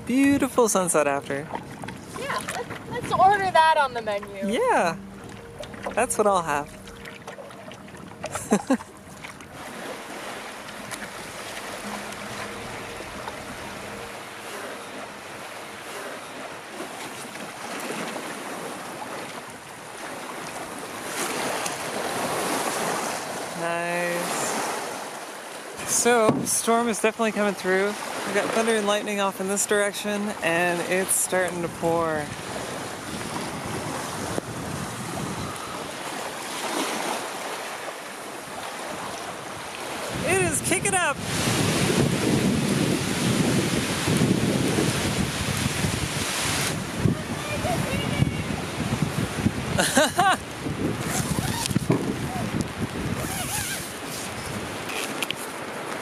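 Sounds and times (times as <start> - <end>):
wind gusting: 0.0 - 19.0, 30.5 - 36.5, 38.8 - 55.0
wind buffeting microphone: 0.0 - 23.6, 25.8 - 27.0, 30.3 - 36.8, 38.4 - 56.0
waves washing on a lake: 0.0 - 56.0.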